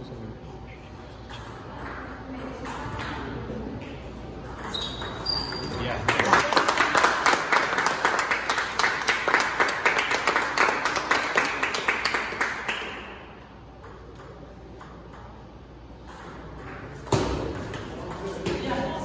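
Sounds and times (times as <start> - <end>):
spectators clapping: 5.9 - 13.4.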